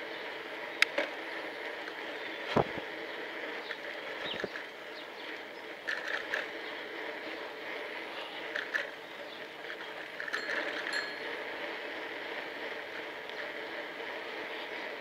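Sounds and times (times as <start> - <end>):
wind and tyre noise: 0.0 - 15.0
bicycle clicks and rattles: 0.5 - 15.0.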